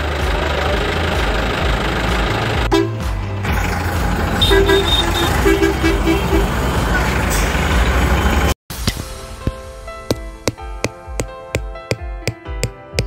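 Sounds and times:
vehicle engine rumbling: 0.0s - 11.3s
short horn toots: 4.4s - 6.5s.

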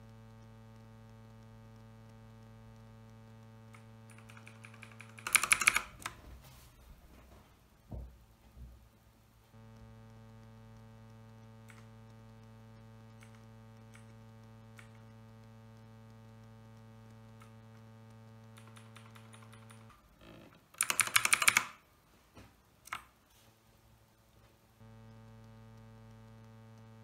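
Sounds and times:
electrical hum: 0.0s - 27.0s
mechanical keyboard clicks: 3.7s - 6.2s, 18.6s - 20.0s, 20.7s - 21.8s, 22.8s - 23.1s
rapid key presses: 3.7s - 6.3s, 18.5s - 20.0s, 20.7s - 21.8s, 22.8s - 23.1s.

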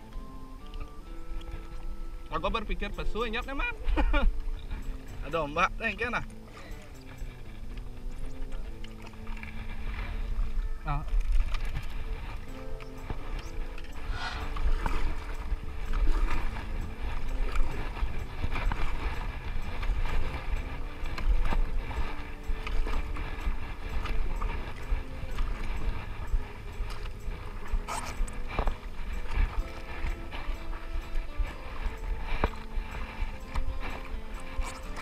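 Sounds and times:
paddle strokes splashing in water: 3.9s - 35.0s
steady low rumble: 9.4s - 34.4s.

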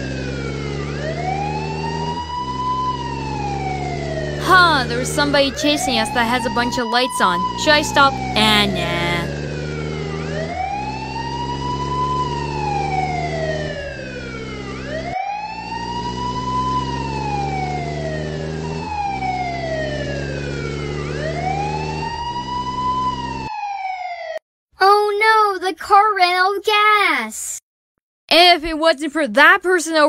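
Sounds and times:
vehicle engine drone: 0.0s - 23.5s
police siren wailing: 0.0s - 24.4s.

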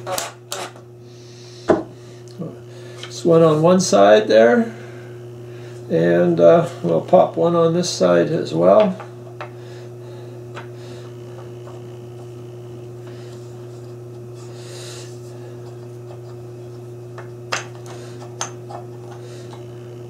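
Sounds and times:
steady low hum: 0.0s - 20.0s
wood rubbing: 10.5s - 19.7s.

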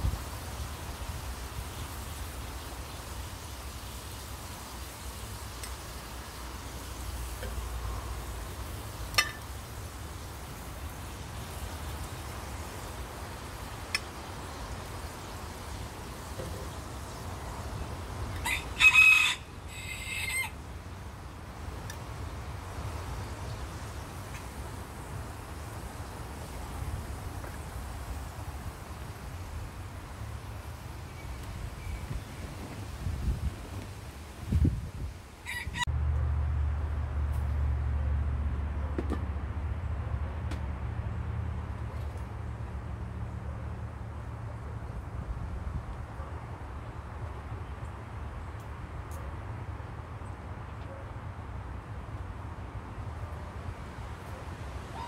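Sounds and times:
rooster crowing: 18.3s - 20.6s, 35.4s - 35.9s.

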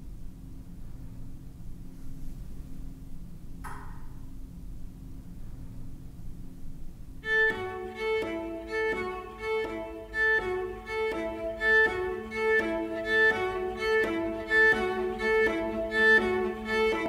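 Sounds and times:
violin-led string music: 7.2s - 17.0s.

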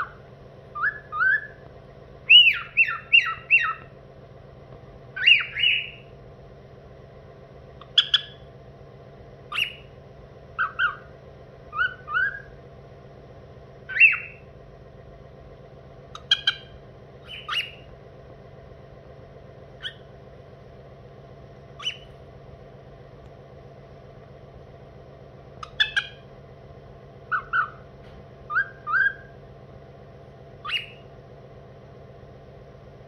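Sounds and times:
cockatiel whistling and chirping: 0.0s - 0.2s, 0.8s - 1.6s, 2.3s - 3.9s, 5.2s - 6.1s, 7.8s - 8.4s, 9.5s - 9.9s, 10.6s - 11.1s, 11.7s - 12.5s, 13.9s - 14.4s, 16.2s - 17.9s, 19.8s - 20.0s, 21.8s - 22.1s, 25.6s - 26.2s, 27.3s - 27.8s, 28.5s - 29.4s, 30.6s - 31.0s.

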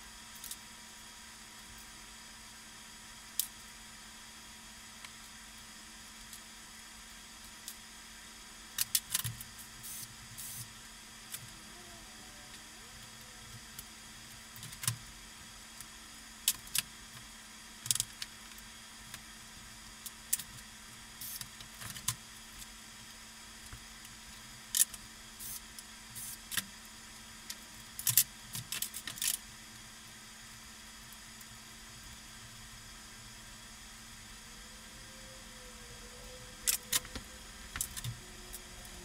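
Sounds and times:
typewriter mechanism clicks and rattles: 28.0s - 29.4s.

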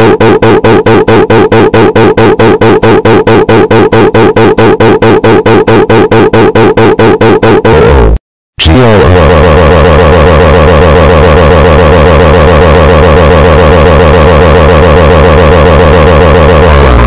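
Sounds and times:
harsh pulsing electronic buzz: 7.6s - 17.0s.

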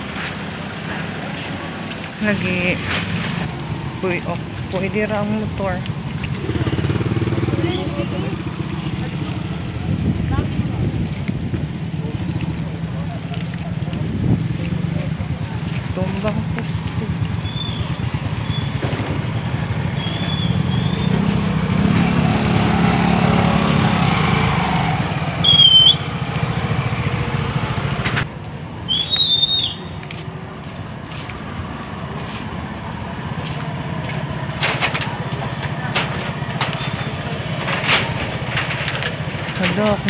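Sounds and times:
motorcycle engines running: 0.0s - 28.8s, 29.8s - 40.0s
high-pitched squeals: 25.4s - 26.1s.

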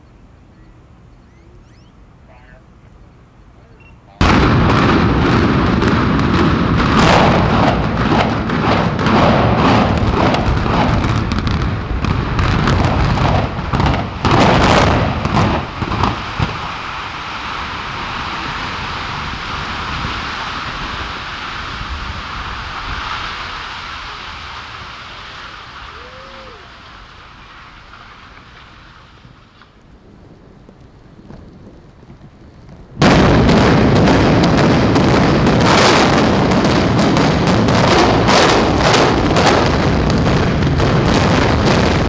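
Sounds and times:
building collapse rumble: 4.1s - 42.0s
demolition charges banging: 32.9s - 42.0s.

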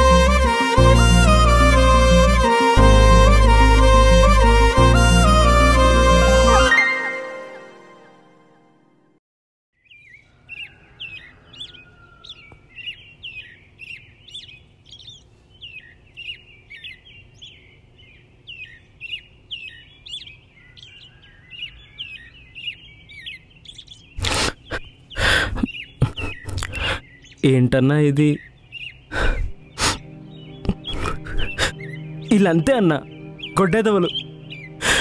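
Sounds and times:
small birds chirping: 9.8s - 35.0s.

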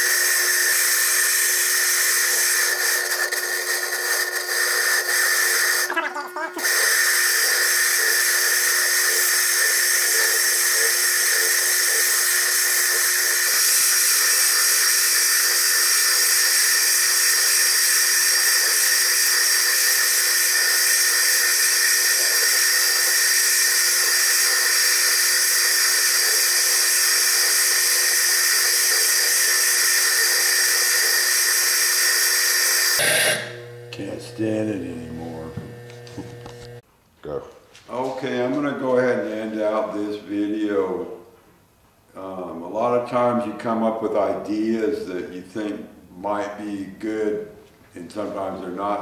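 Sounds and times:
stone grinding hiss: 0.0s - 5.9s, 6.6s - 33.7s
lathe high-pitched whine: 0.0s - 6.0s, 6.6s - 36.8s.

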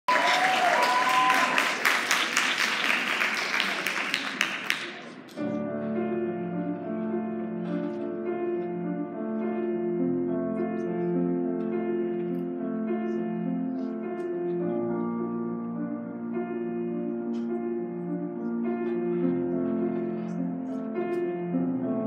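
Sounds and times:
audience applause: 0.1s - 5.4s
slow piano intro: 0.1s - 22.0s.

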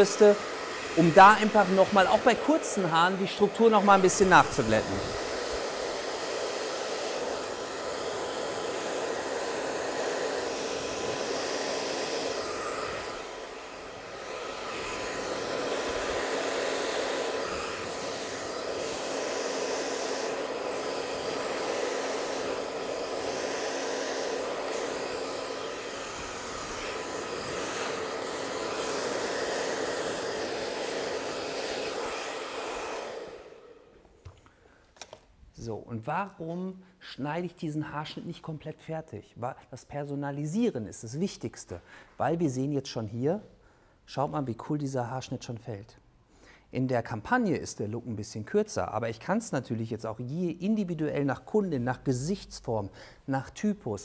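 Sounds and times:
hair dryer blowing: 0.0s - 35.2s.

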